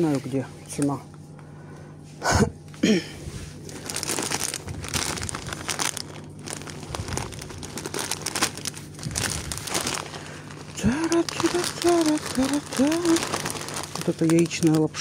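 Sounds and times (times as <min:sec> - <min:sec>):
steady low hum: 0:00.0 - 0:15.0
plastic packaging crinkling: 0:03.5 - 0:15.0.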